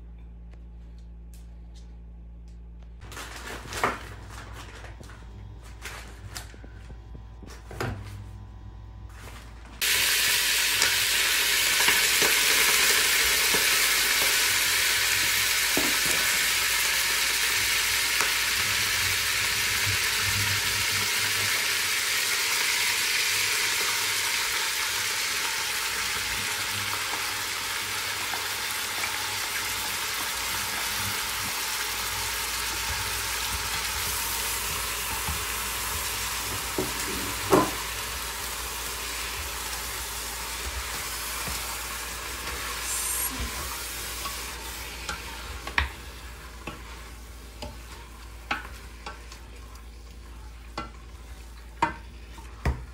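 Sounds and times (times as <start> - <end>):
meat sizzling in hot oil: 9.8 - 49.0.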